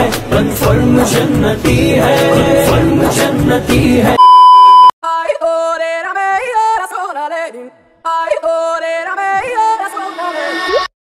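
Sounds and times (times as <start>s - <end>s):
test-pattern beep: 4.2s - 4.9s.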